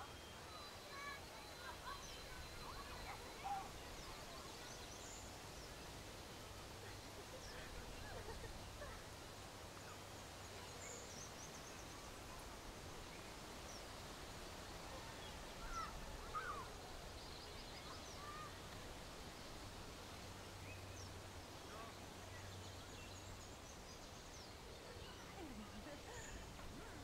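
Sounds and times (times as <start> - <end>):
bird calls and chirps: 15.2 - 18.5.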